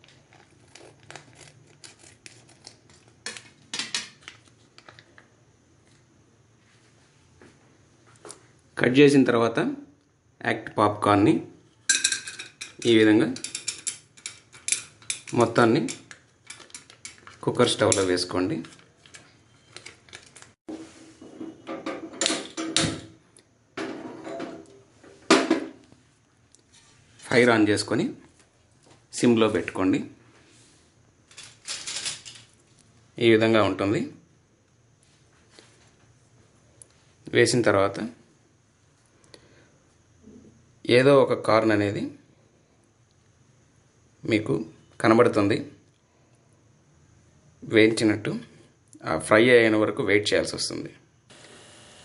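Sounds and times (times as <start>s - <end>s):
plastic packet crinkling: 0.0s - 3.1s
pot clunking and scraping: 20.7s - 23.0s, 23.8s - 25.8s.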